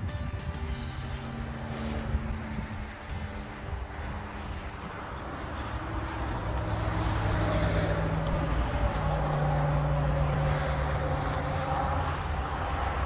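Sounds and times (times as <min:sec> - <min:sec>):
engine drone: 0:00.0 - 0:13.0.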